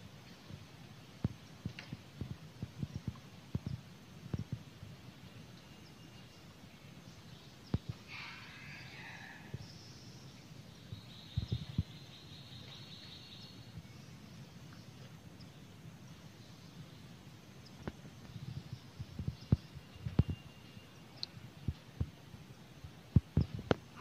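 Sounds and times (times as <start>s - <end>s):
forest ambience: 0.0s - 24.0s
high drawn-out animal call: 8.1s - 9.6s.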